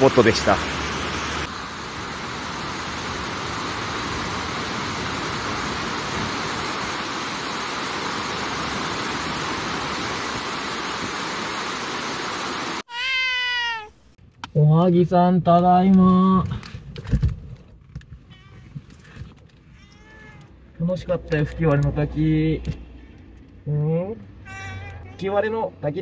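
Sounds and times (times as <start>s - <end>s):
waterfall rushing: 0.0s - 13.1s.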